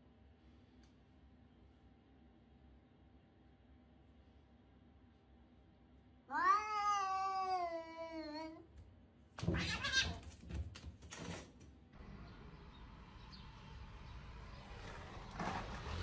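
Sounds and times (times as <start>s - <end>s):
cat yowling: 6.3s - 8.6s, 9.4s - 10.2s.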